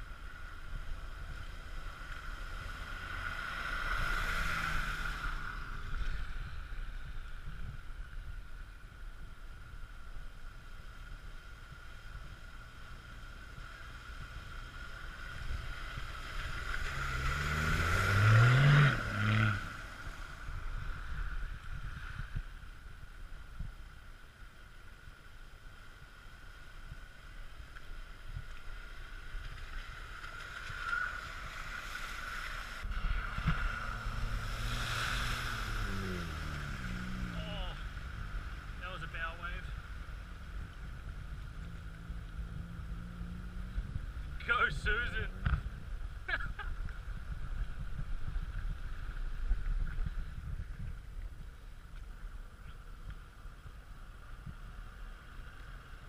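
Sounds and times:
vehicles splashing through water: 0.0s - 56.0s
engine accelerating: 14.7s - 20.5s, 31.8s - 45.7s.

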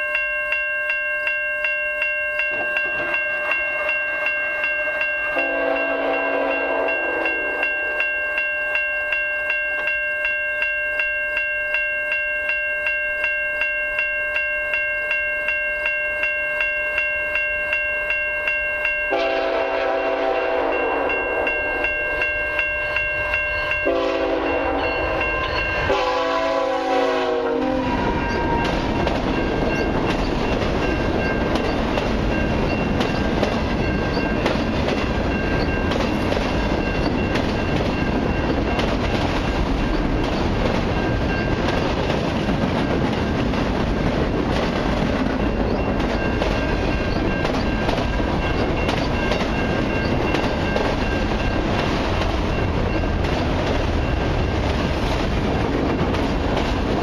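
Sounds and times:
level-crossing bell ringing: 0.0s - 57.0s
train rumbling past: 2.4s - 8.4s, 17.0s - 57.0s
locomotive air horn blasts: 5.4s - 7.4s, 19.1s - 21.2s, 23.8s - 28.6s
wheels clacking over rails: 27.9s - 57.0s.

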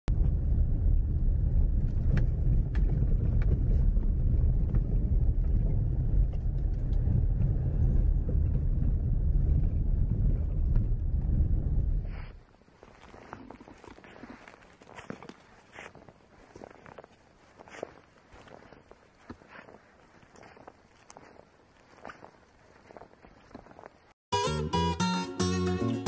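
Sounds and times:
car engine and tyres rumbling: 0.1s - 12.2s.

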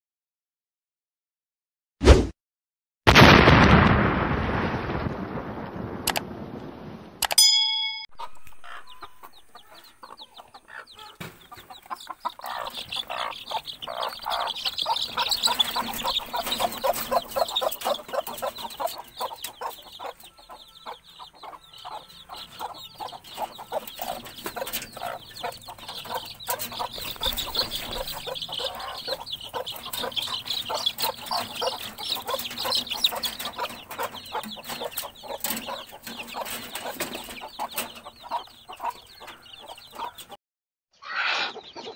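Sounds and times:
chicks cheeping: 8.2s - 40.4s, 41.0s - 41.9s.

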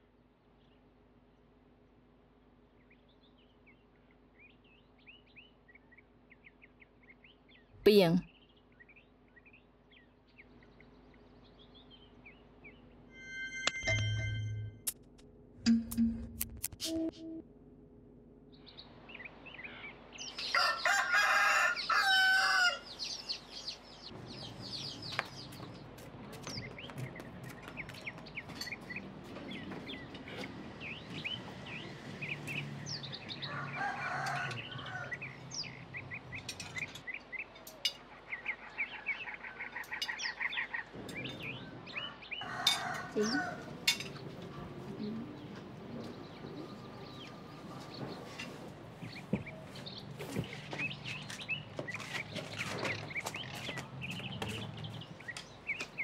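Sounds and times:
small birds chirping: 2.3s - 13.1s, 18.5s - 56.0s
chicken calls: 20.3s - 23.8s, 41.5s - 43.8s
rooster crowing: 20.4s - 23.0s, 33.4s - 35.4s, 41.9s - 43.9s.

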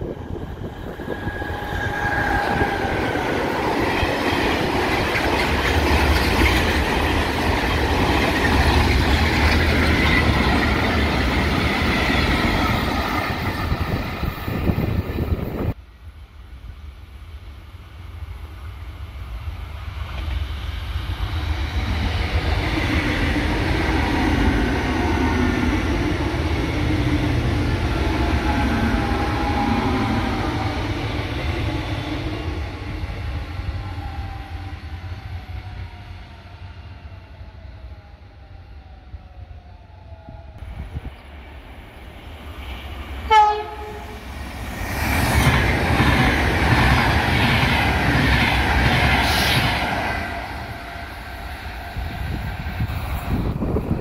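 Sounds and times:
electric train approaching: 0.0s - 54.0s
freight train rumbling and rattling: 0.0s - 54.0s
train wheels squealing: 0.3s - 7.2s.

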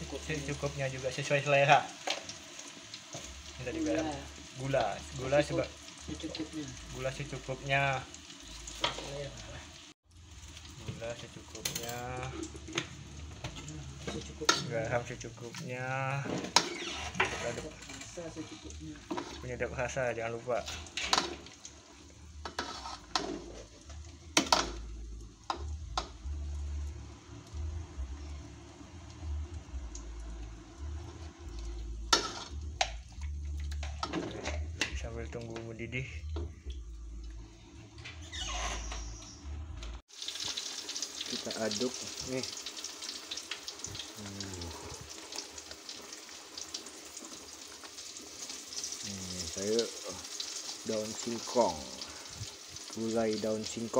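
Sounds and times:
curry bubbling in a pot: 0.0s - 34.6s, 40.0s - 53.9s
metal ladle stirring in pot: 22.4s - 24.7s.

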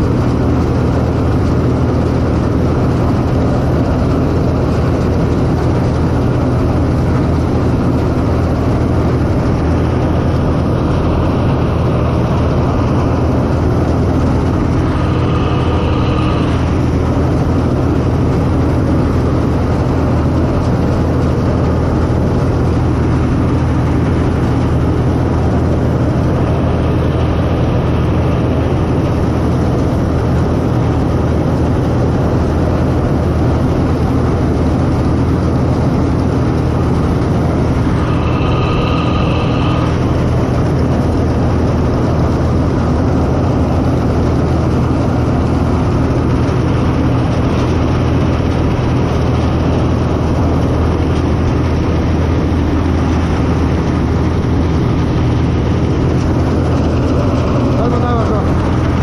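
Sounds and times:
combine harvester running: 0.0s - 59.0s
brief high whine: 37.5s - 41.1s.

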